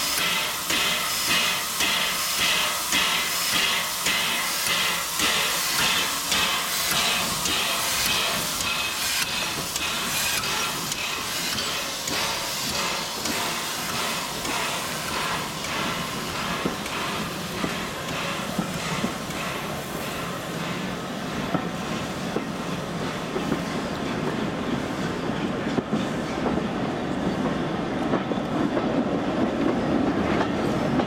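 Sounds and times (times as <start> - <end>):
hiss of escaping steam: 0.0 - 24.0
steam locomotive chuffing: 0.0 - 31.0.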